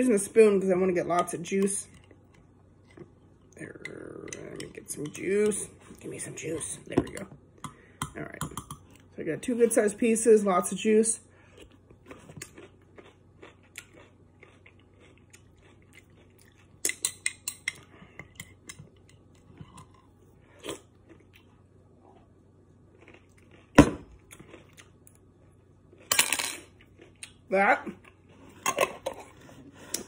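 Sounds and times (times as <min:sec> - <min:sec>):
person chewing: 0:11.4 - 0:26.1, 0:26.7 - 0:27.4.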